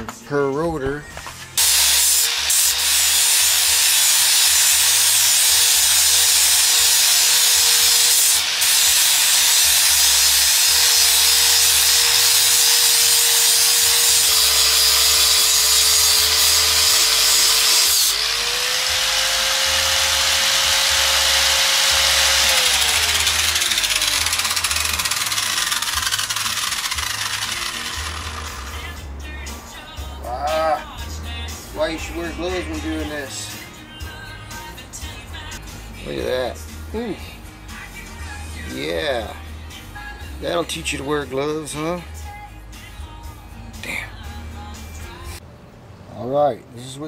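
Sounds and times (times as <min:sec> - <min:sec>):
angle grinder grinding steel: 0:01.6 - 0:29.0
grinder motor whine: 0:14.5 - 0:28.8.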